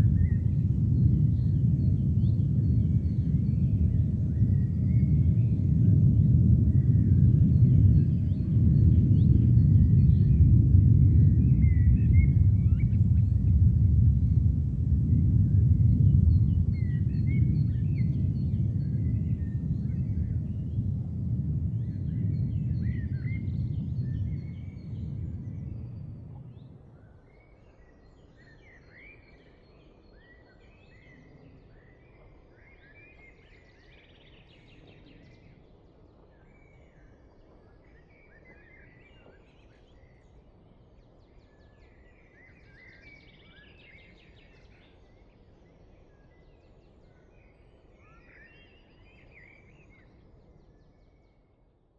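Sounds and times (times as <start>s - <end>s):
low background rumble: 0.0s - 27.1s.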